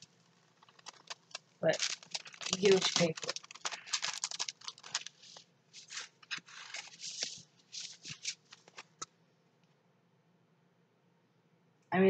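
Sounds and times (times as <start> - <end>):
canvas rustling and crinkling: 0.0 - 9.0.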